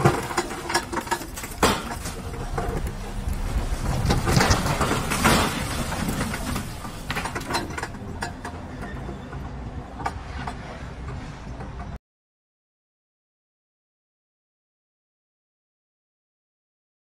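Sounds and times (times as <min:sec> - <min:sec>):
metal and lumber debris clattering: 0:00.0 - 0:09.4
excavator engine rumbling: 0:00.0 - 0:12.0.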